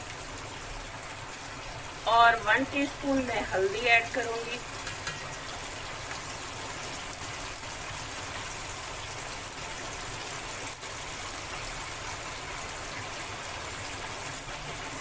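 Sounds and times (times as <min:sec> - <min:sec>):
masala sizzling in oil: 0:00.0 - 0:15.0.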